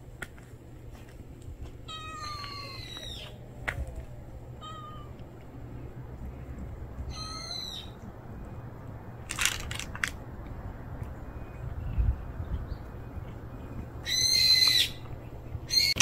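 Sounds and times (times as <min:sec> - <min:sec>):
cat meowing: 0:01.9 - 0:03.2, 0:04.6 - 0:05.2
sharp clicks: 0:09.2 - 0:10.2.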